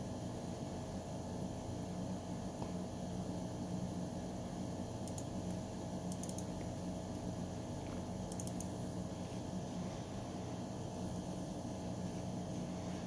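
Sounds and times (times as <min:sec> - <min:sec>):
low electrical hum with hiss: 0:00.0 - 0:13.0
computer mouse clicks: 0:05.0 - 0:05.3, 0:06.1 - 0:06.5, 0:08.3 - 0:08.7.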